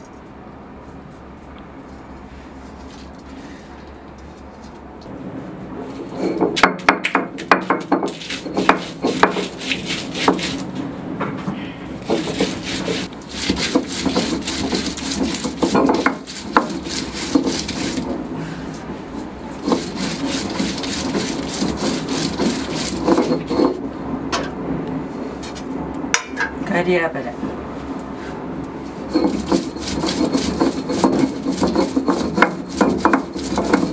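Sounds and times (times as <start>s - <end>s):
stone roller grinding on stone: 7.4s - 10.8s, 12.0s - 18.3s, 19.1s - 23.9s, 28.9s - 33.9s.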